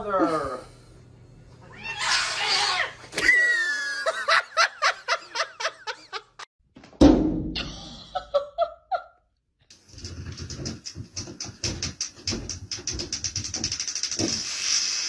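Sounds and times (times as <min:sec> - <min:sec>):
loud thump: 0:06.9 - 0:07.7
person laughing: 0:07.6 - 0:09.2
short hissing noise: 0:13.8 - 0:15.0.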